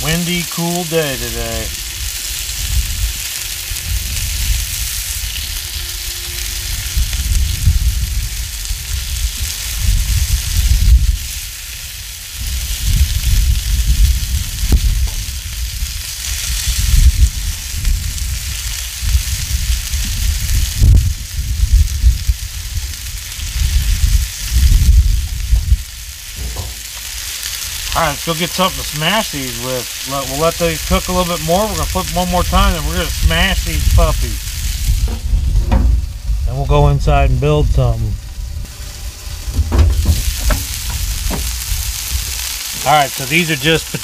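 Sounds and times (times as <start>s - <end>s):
meat sizzling on a griddle: 0.0s - 44.0s
wind buffeting microphone: 1.6s - 27.9s, 31.7s - 42.4s.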